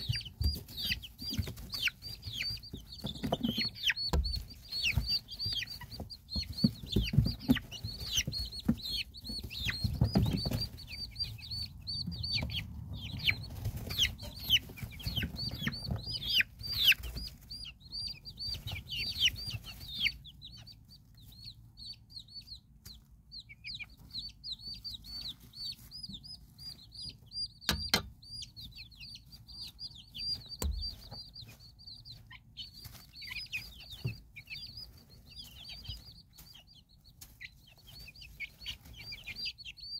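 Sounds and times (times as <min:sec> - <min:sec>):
chicks peeping: 0:00.0 - 0:39.9
sharp knocks: 0:27.6 - 0:28.2.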